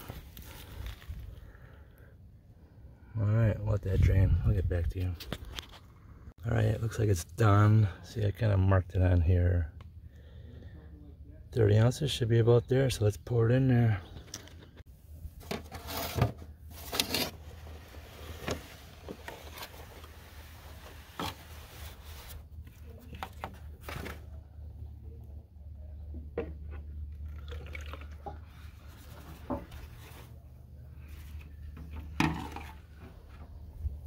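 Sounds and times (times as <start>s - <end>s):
oil pouring into container: 27.1s - 29.0s.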